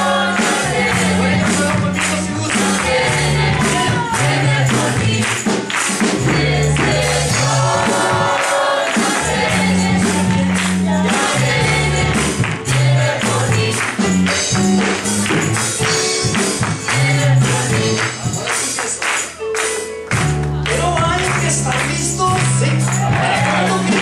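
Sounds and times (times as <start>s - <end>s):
bass line: 0.0s - 5.4s, 6.0s - 8.4s, 9.1s - 18.5s, 20.1s - 24.0s
choir singing gospel song: 0.0s - 14.7s, 16.4s - 18.8s, 22.6s - 24.0s
percussive beat: 0.0s - 24.0s.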